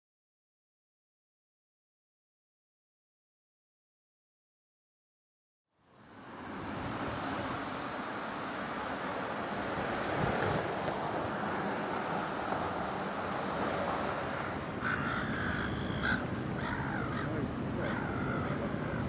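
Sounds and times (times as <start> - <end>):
crow cawing: 14.3 - 19.0.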